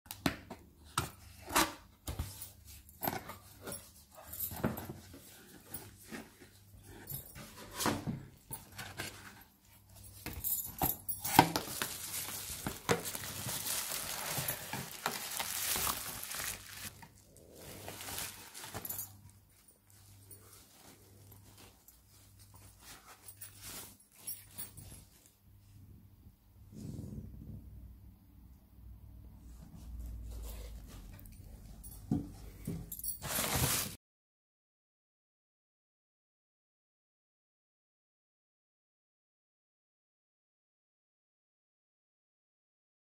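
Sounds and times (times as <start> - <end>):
plastic packaging rustling: 11.2 - 19.6, 33.0 - 34.0.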